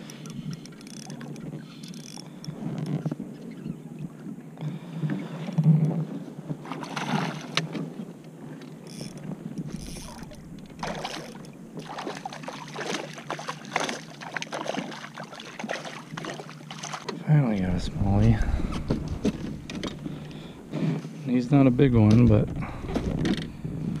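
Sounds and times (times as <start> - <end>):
water sloshing against kayak hull: 0.1 - 24.0
fish splashing and knocking: 9.7 - 17.2, 18.6 - 20.5.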